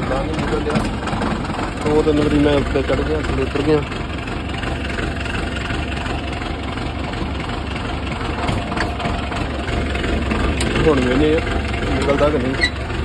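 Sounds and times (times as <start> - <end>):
diesel tractor engine idling: 0.0 - 13.0.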